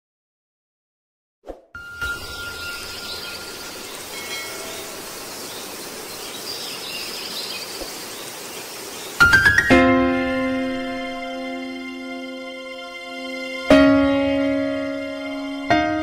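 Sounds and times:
faint high chirps: 1.8 - 8.1
outdoor background noise: 1.8 - 12.4.

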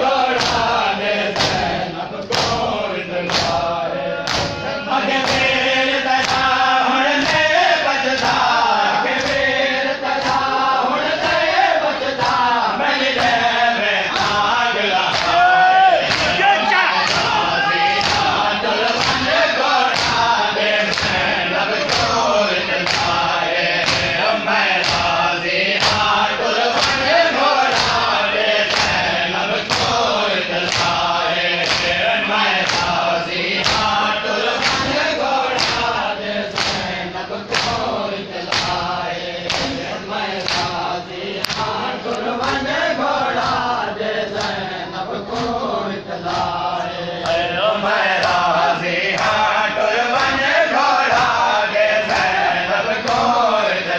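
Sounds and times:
crowd of men chanting: 0.0 - 53.9
hands beating chests: 1.4 - 5.6, 14.1 - 43.7.

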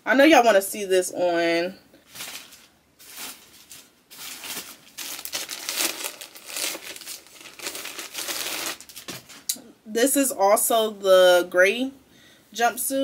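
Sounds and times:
plastic bag crinkling: 2.1 - 9.5.

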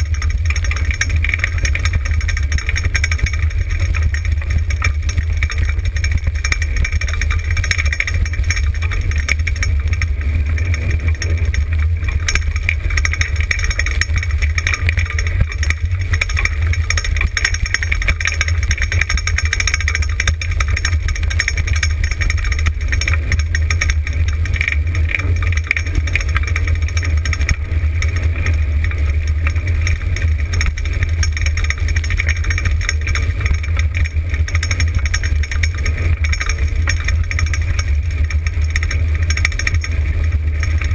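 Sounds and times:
wheels rumbling on gravel: 0.0 - 40.9.

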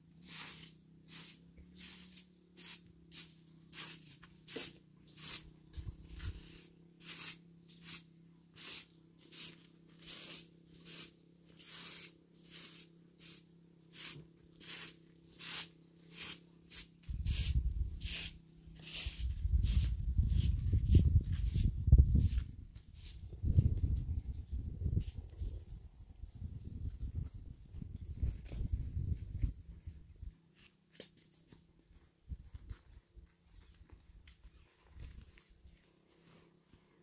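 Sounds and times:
broom sweeping dirt: 0.0 - 25.7, 35.8 - 37.0.

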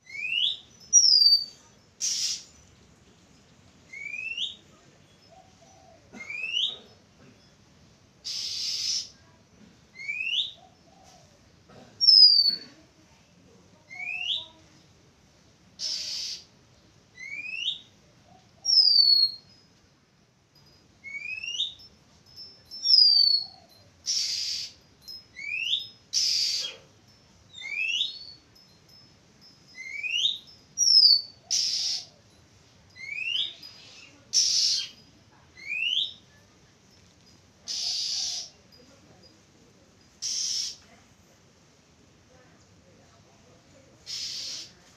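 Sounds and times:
bird whistled calls: 0.0 - 2.5, 3.9 - 4.6, 8.2 - 9.2, 10.0 - 10.6, 15.8 - 16.5, 18.6 - 19.4, 22.8 - 24.8, 27.5 - 28.4, 29.8 - 32.1, 33.0 - 35.0, 35.6 - 36.2, 37.7 - 38.5, 40.2 - 40.8, 44.1 - 44.8
harsh rasping bird notes: 1.3 - 2.6, 8.2 - 9.1, 15.8 - 16.5, 24.0 - 24.8, 37.7 - 38.6, 40.2 - 40.8, 44.0 - 44.8.

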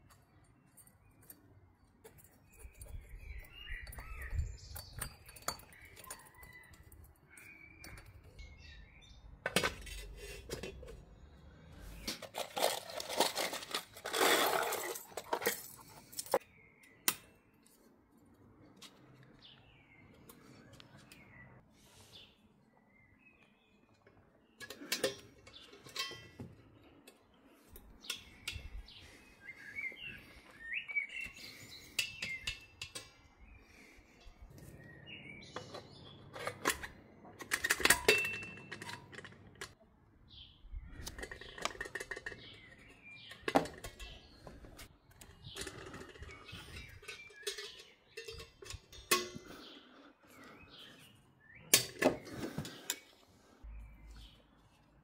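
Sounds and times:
birds chirping: 0.2 - 9.4, 18.5 - 36.9, 40.3 - 55.0.

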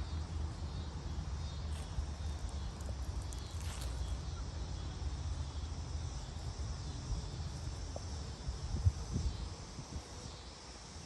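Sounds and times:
faint insect hiss: 0.0 - 11.0.

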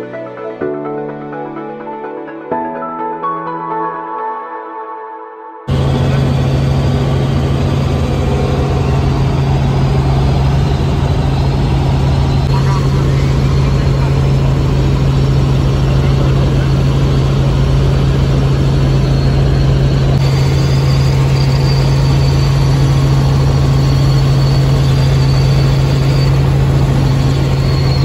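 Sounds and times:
faint high whine: 5.7 - 28.0
helicopter rotor and engine drone: 5.7 - 28.0.

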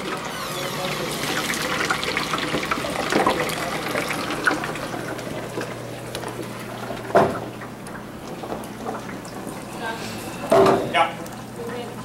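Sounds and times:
oil bubbling in deep fryer: 0.0 - 12.0.

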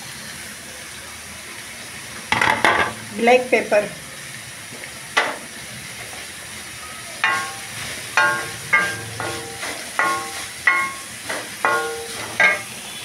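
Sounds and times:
vegetables sizzling in oil: 0.0 - 13.0
spatula stir-frying in a pan: 4.1 - 13.0
spatula knocking a metal pan: 7.2 - 12.8.

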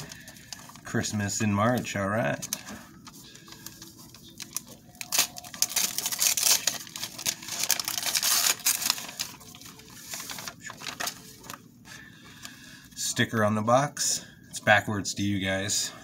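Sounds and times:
wrapping paper tearing: 0.0 - 11.6.

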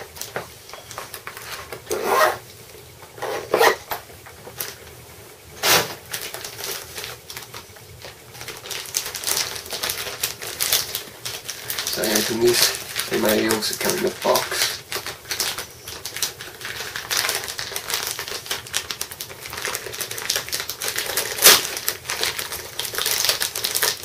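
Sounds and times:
packaging rustles and knocks: 5.7 - 24.0
plastic packaging crinkling: 5.9 - 24.0.

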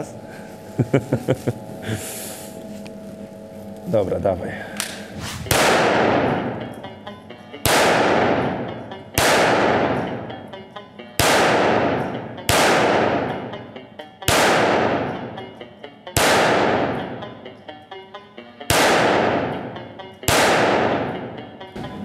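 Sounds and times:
pistol shots with echo: 4.8 - 10.5, 11.2 - 13.7, 14.3 - 17.5, 18.7 - 21.9.

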